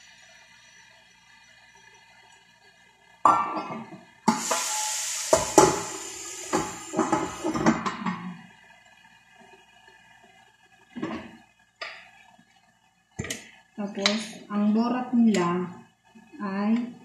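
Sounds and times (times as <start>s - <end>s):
chicken sizzling in hot pan: 4.2s - 8.6s.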